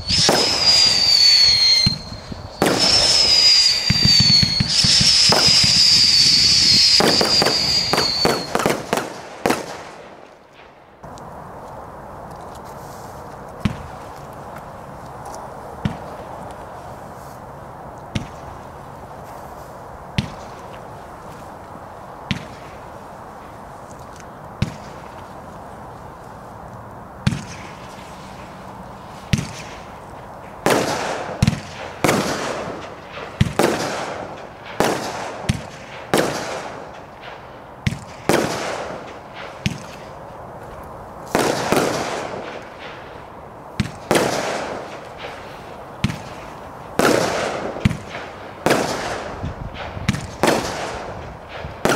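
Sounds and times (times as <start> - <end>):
firework shell bursts: 0.0 - 10.2
steady hiss: 0.0 - 51.9.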